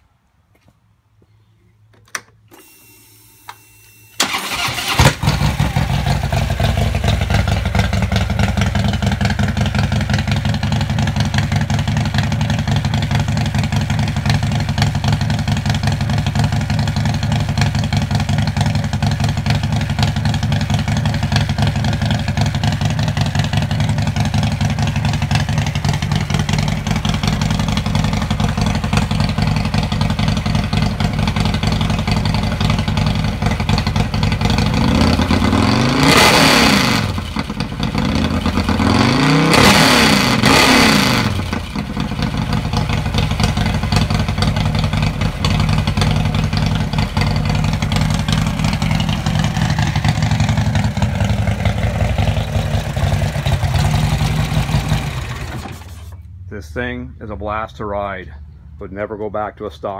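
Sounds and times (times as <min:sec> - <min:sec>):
motorcycle engine idling and revving: 0:04.2 - 0:56.5.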